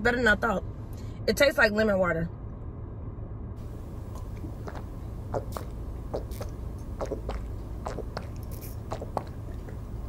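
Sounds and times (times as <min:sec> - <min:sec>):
person gulping a drink: 0:04.1 - 0:09.9.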